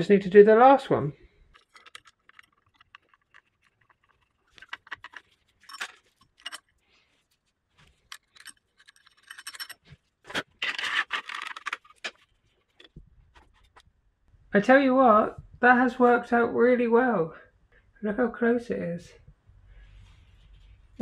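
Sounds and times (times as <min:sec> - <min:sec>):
metal rattling scrape: 0:01.5 - 0:06.7, 0:07.9 - 0:13.8
light metal clicks and scrapes: 0:01.5 - 0:13.9.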